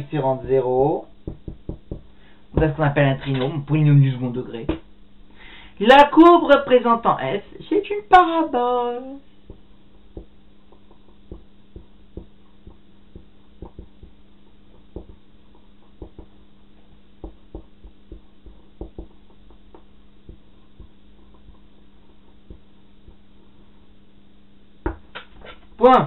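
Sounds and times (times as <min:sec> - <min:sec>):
steady low hum: 0:00.0 - 0:26.0
marker writing on whiteboard: 0:09.5 - 0:16.4, 0:17.2 - 0:23.6.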